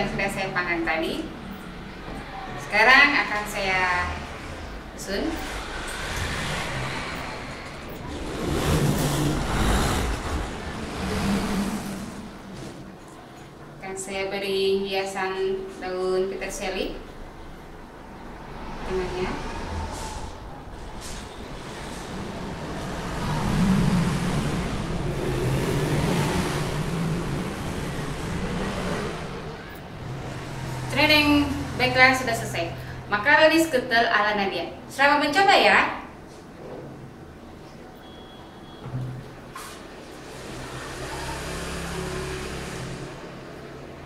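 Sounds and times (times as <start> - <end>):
vehicle engine passing by: 0.0 - 13.8, 16.3 - 33.6, 39.6 - 44.0
road traffic rushing: 0.0 - 35.0, 39.2 - 44.0.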